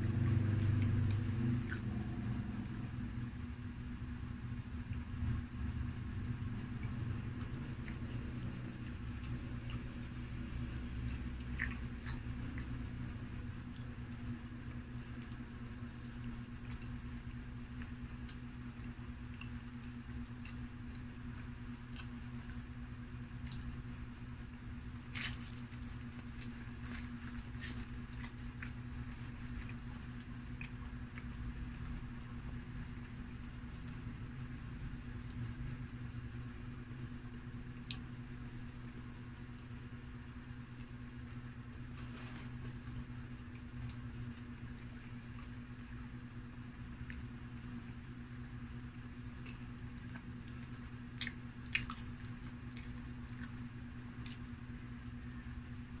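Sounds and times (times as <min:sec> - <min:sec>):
steady low hum: 0:00.0 - 0:56.0
person chewing: 0:00.3 - 0:02.8, 0:10.8 - 0:13.0, 0:25.1 - 0:33.4, 0:49.3 - 0:54.6.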